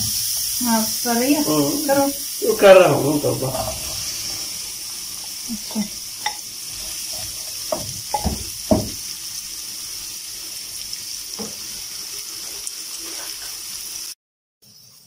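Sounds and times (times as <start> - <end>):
onions sizzling in hot oil: 0.0 - 15.0
bowl knocking on pan: 7.6 - 9.1.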